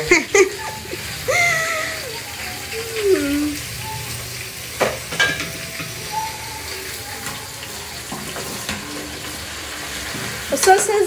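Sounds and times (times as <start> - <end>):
potatoes sizzling in oil: 0.0 - 11.0.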